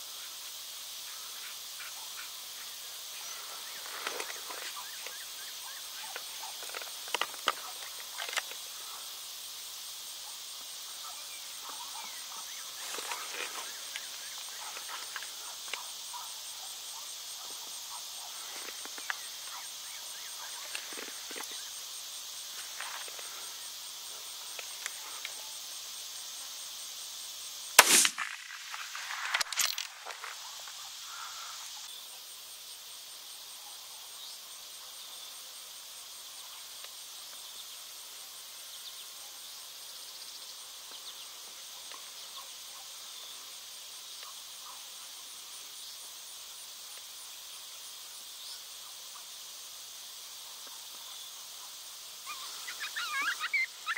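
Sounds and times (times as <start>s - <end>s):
insects chirping: 0.0s - 53.9s
small sharp noises: 1.2s - 9.6s, 10.5s - 26.0s, 27.6s - 31.9s
gunshot: 27.8s - 28.7s.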